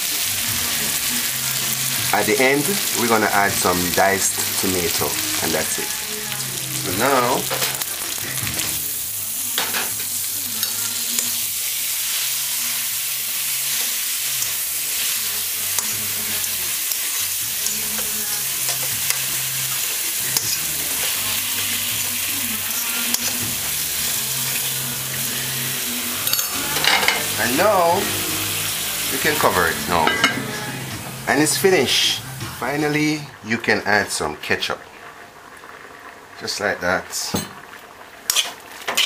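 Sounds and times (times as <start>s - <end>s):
food sizzling in a pot: 0.0s - 39.0s.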